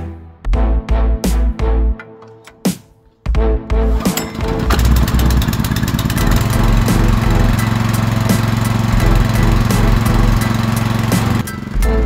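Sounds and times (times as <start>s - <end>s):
pressure washer engine running: 4.0s - 12.0s.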